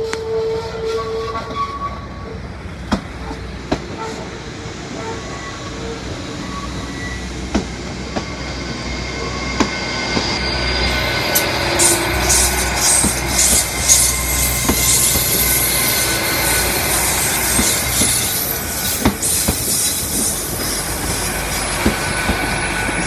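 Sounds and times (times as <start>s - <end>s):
train diesel engine rumble: 0.0s - 23.0s
high-pitched wheel noise: 4.8s - 23.0s
wheels clicking over rail joints: 11.3s - 23.0s.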